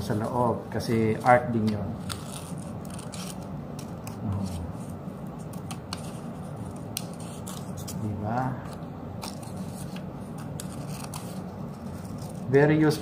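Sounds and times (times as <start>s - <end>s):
scissors snipping paper: 1.6s - 4.6s, 5.5s - 12.4s.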